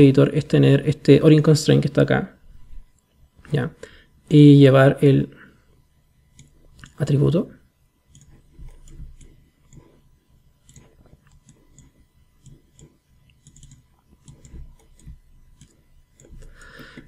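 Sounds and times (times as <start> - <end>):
computer mouse clicks: 6.3 - 7.0, 8.1 - 10.0, 10.6 - 17.0.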